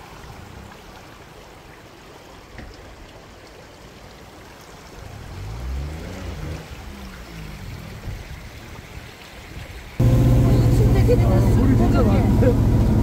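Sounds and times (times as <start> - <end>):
stream water rushing: 0.0 - 13.0
low droning sound: 10.0 - 13.0.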